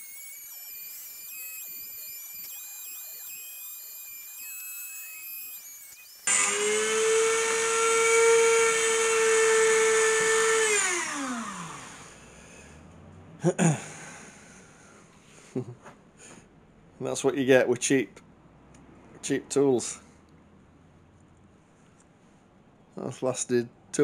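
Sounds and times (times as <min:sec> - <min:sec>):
rotary tool spinning down: 0:00.0 - 0:12.5
rotary tool whine: 0:00.0 - 0:13.2.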